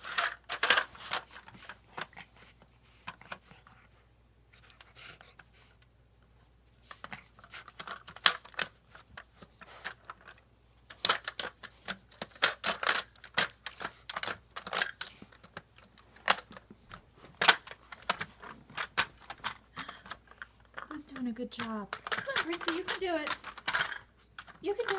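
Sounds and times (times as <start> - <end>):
plastic toy pieces clattering: 0.0 - 1.3, 9.8 - 16.6, 17.4 - 24.9.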